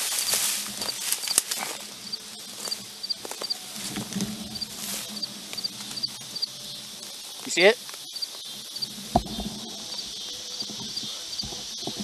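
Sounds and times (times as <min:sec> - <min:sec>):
faint high chirp: 0:00.1 - 0:01.5, 0:04.6 - 0:08.9.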